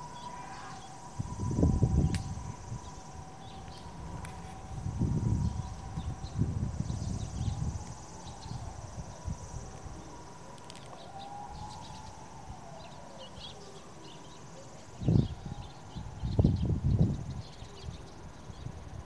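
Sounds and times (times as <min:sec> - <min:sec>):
faint siren-like tone: 0:00.0 - 0:19.0
sparrows chirping: 0:10.8 - 0:18.7.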